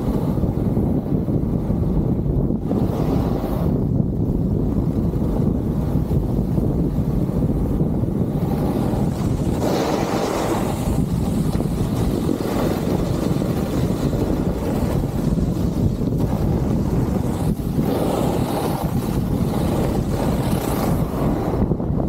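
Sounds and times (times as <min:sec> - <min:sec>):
snowboard sliding on snow: 0:00.0 - 0:22.0
wind buffeting microphone: 0:00.0 - 0:22.0
snowboard edge scraping hiss: 0:02.6 - 0:03.9, 0:05.9 - 0:21.9.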